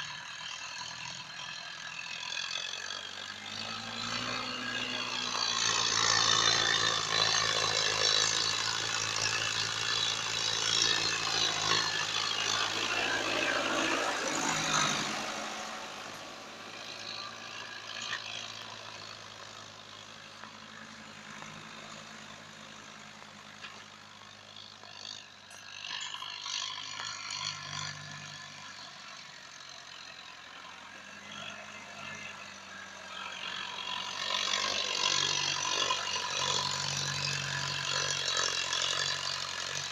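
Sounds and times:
tractor diesel engine running: 0.0s - 39.9s.

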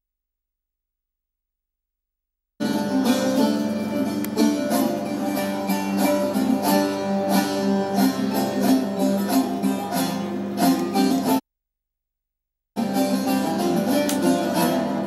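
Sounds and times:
plucked string folk music: 2.6s - 11.4s, 12.8s - 15.0s.

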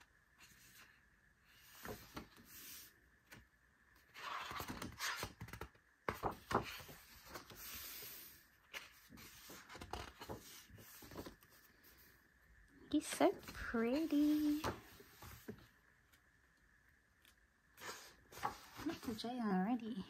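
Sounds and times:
thick paper pages turning: 4.0s - 12.1s, 13.3s - 15.7s, 17.8s - 19.2s.

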